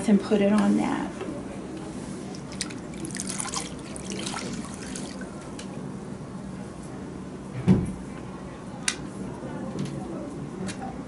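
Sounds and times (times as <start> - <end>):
water splashing in a basin: 2.3 - 5.3
water dripping: 2.4 - 5.2.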